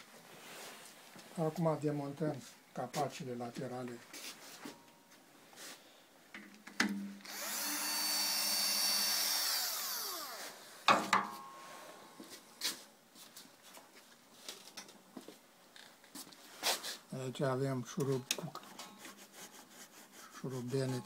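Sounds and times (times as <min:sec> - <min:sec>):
cordless drill running: 0:07.2 - 0:10.6.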